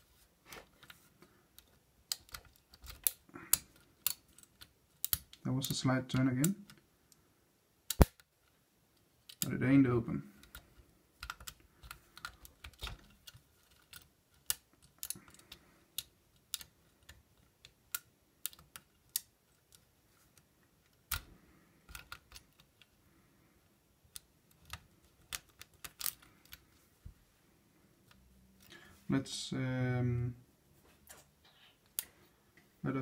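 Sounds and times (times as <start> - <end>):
lock pick clicking in lock: 24.1 - 26.6.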